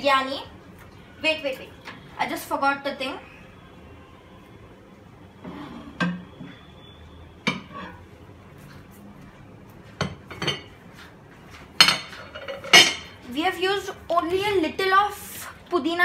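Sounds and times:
kitchenware clinking and knocking: 0:07.4 - 0:08.0, 0:10.0 - 0:10.8, 0:11.8 - 0:13.2.

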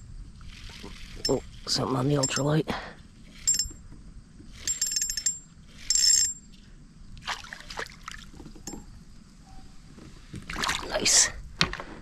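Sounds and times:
fishing reel drag ticking: 0:00.5 - 0:02.6, 0:03.2 - 0:03.8, 0:04.6 - 0:06.4
fish splashing at surface: 0:07.2 - 0:08.4.

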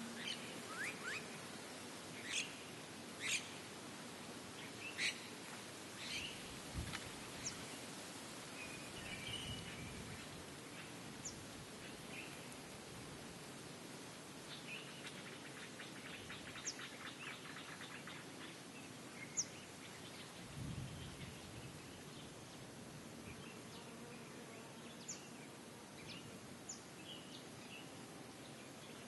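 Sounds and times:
background noise: 0:00.0 - 0:29.0.

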